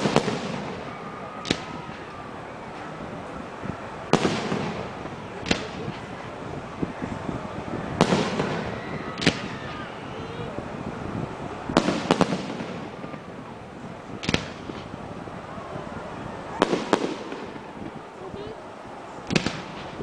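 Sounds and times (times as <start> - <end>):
background noise: 0.0 - 20.0
firework shells bursting: 14.2 - 15.0, 19.2 - 20.0.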